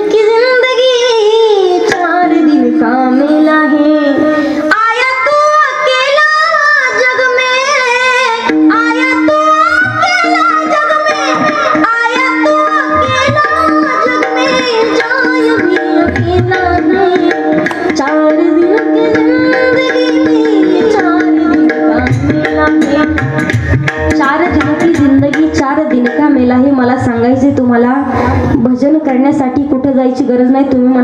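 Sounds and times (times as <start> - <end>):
woman singing: 0.0 - 31.0
hand drum strokes: 8.5 - 26.5.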